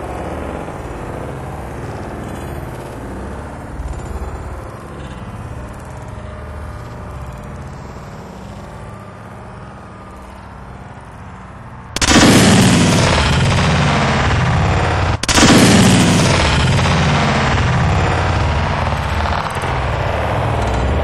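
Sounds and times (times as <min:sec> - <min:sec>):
low steady rumble: 0:00.0 - 0:21.0
explosions: 0:12.0 - 0:21.0.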